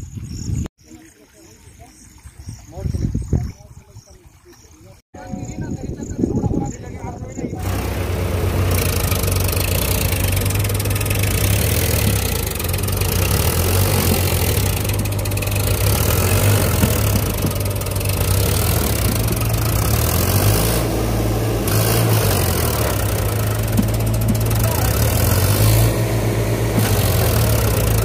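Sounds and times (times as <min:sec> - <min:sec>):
tractor diesel engine under load: 0:06.9 - 0:28.0.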